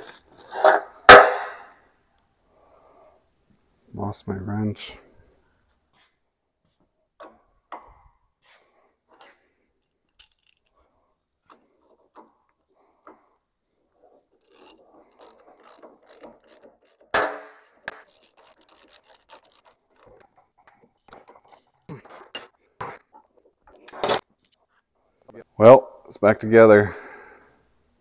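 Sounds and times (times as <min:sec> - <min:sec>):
hand wrench ratcheting: 0:09.1 - 0:10.8, 0:14.0 - 0:21.6.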